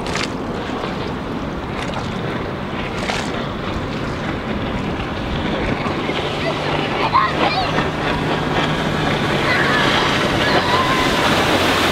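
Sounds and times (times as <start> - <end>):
distant boat engine drone: 0.0 - 11.9
water wash: 0.0 - 11.9
wind noise on microphone: 0.0 - 11.9.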